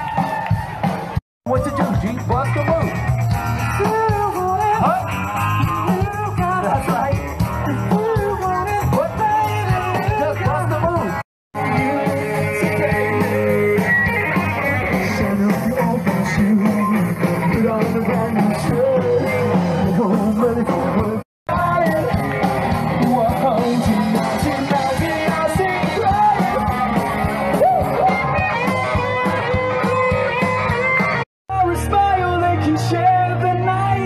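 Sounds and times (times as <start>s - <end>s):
live rock band: 0.0s - 34.0s
person singing: 3.8s - 11.0s, 11.6s - 29.8s.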